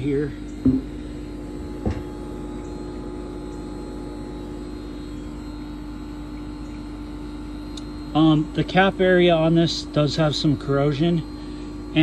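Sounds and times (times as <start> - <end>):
steady mechanical hum: 0.0 - 12.0
short knock: 0.6 - 0.9.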